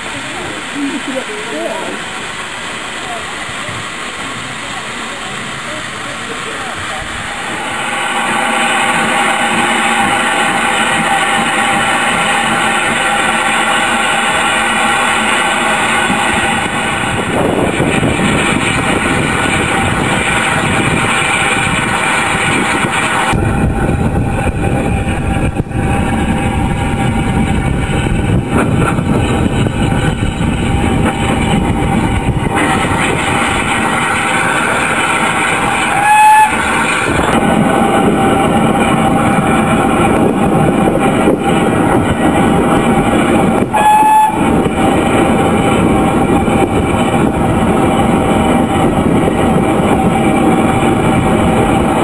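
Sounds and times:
steam locomotive rumble: 0.0s - 52.0s
wind noise on microphone: 15.2s - 52.0s
steam whistle blast: 35.8s - 37.4s, 43.7s - 44.5s.

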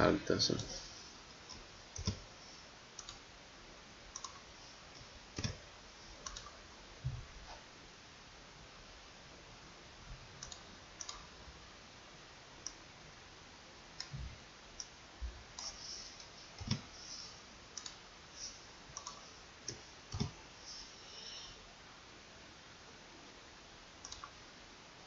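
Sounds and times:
mouse and keyboard clicks: 1.5s - 2.2s, 4.2s - 4.5s, 15.6s - 16.9s, 19.0s - 20.4s.

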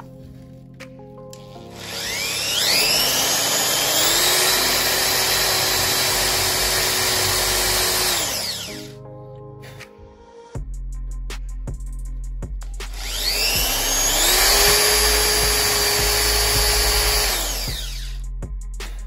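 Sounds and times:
cordless drill boring into wood: 1.7s - 8.9s, 12.9s - 18.2s.

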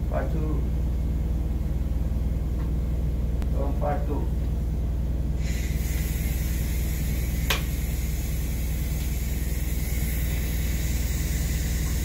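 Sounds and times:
low machinery hum: 0.0s - 12.0s
even hiss: 5.4s - 12.0s.

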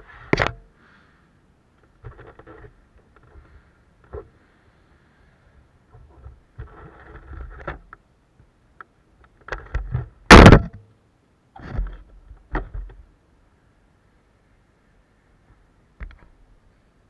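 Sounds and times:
camera handling rubbing: 1.8s - 4.4s.

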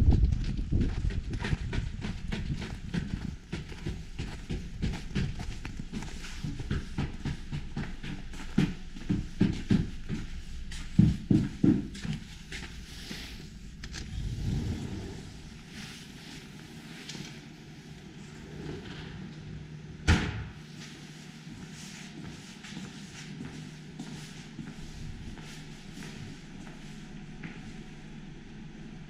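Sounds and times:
footsteps on concrete: 0.1s - 13.4s
shoes shuffling: 0.3s - 17.8s, 20.7s - 27.8s.

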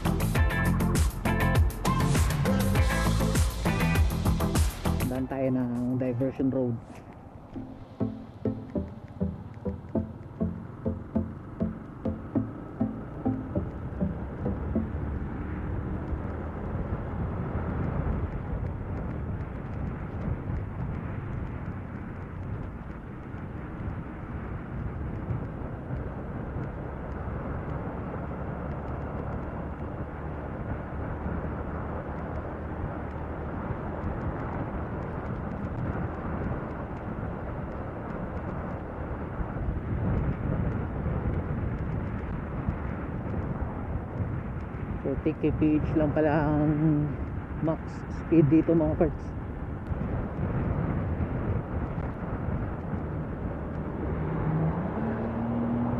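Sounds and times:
motorcycle engine at speed: 11.1s - 45.0s, 49.3s - 55.9s.

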